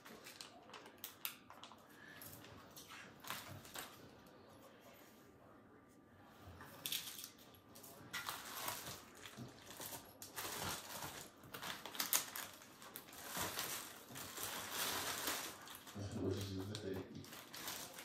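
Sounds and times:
packaging rustling and crinkling: 0.0 - 4.3, 6.8 - 18.0.

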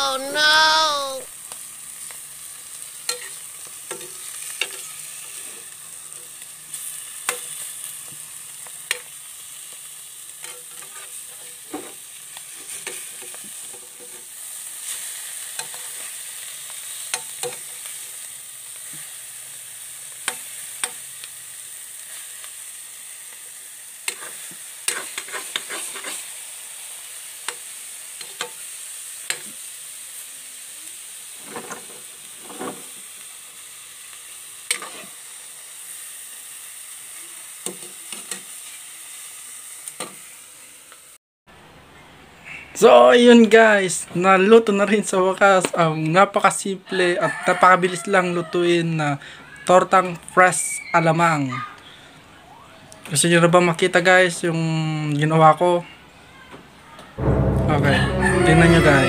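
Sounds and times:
omelette sizzling in a pan: 0.0 - 41.2
utensil scraping a pan: 24.1 - 26.3.

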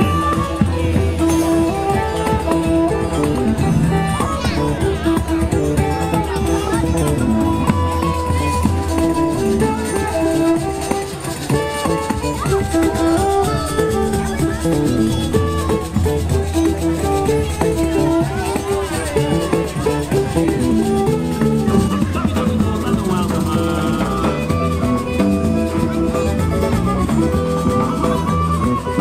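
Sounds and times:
band playing live music: 0.0 - 29.0.

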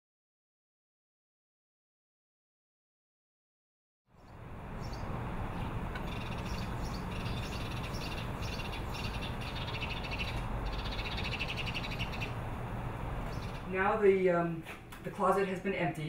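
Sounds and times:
birds calling in buzzy bursts: 4.1 - 14.2.

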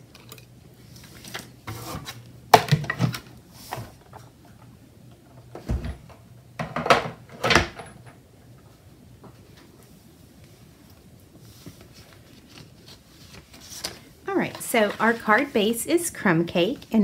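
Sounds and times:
paper rustling: 11.4 - 15.8.

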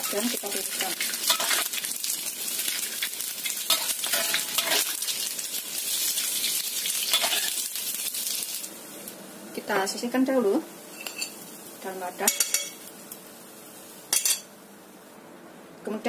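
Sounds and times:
fish sizzling in oil: 0.0 - 15.2
utensil scraping pan: 3.7 - 4.9.

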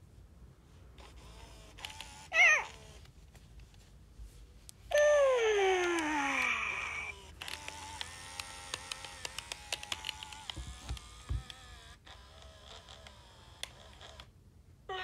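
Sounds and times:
toy motor and gears whirring: 1.0 - 3.2, 4.9 - 14.3
dull thumps of toy handling: 8.7 - 11.6.

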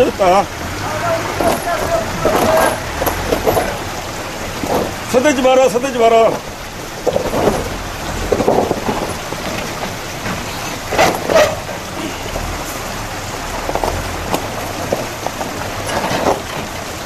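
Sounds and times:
steady crackling hiss: 0.0 - 17.0
tyres crunching on ice and stone: 1.3 - 4.0, 13.6 - 16.8.

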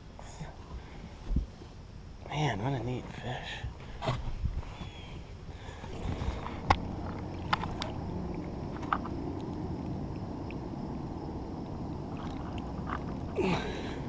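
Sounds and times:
water sloshing and splashing: 3.8 - 14.0.

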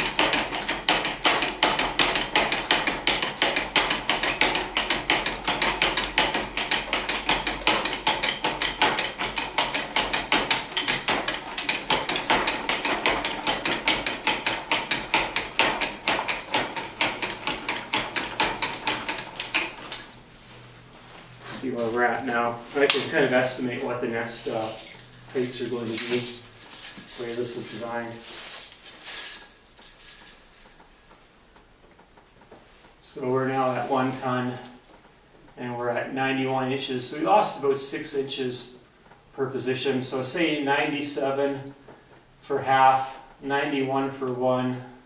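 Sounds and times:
hydraulic ram pump clicking: 0.0 - 20.1.

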